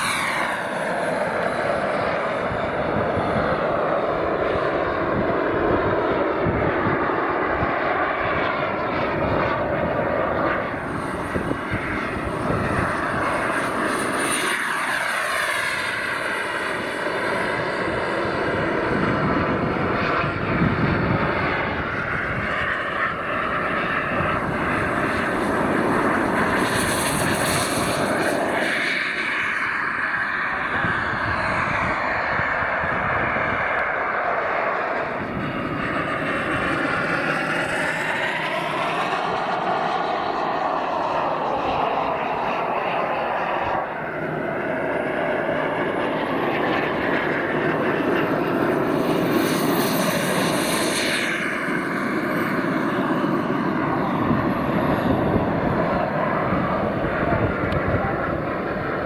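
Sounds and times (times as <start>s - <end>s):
jet fly-by whine: 0.0s - 59.0s
model jet turbine engines: 0.0s - 59.0s.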